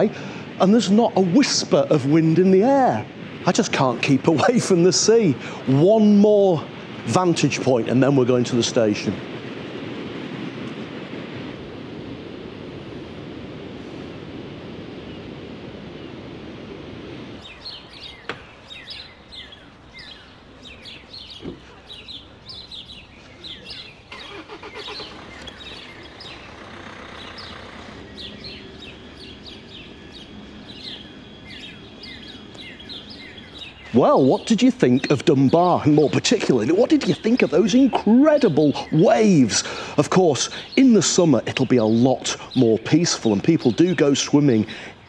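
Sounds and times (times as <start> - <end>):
storm surf breaking against wall: 0.0 - 18.6
small birds chirping: 17.3 - 45.0.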